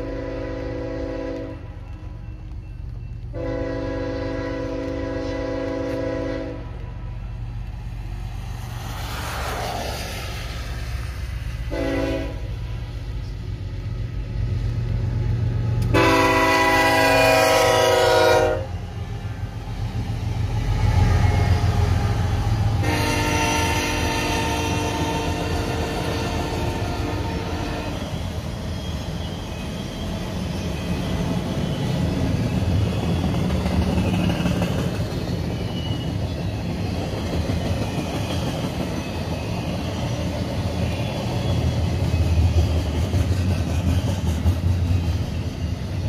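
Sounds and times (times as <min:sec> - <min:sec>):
locomotive horn blasts: 0:00.0 - 0:01.7, 0:03.3 - 0:06.8, 0:11.7 - 0:12.6, 0:15.8 - 0:18.8, 0:22.8 - 0:28.1
freight train rumbling: 0:00.0 - 0:46.0
rail cars rolling past: 0:00.0 - 0:46.0.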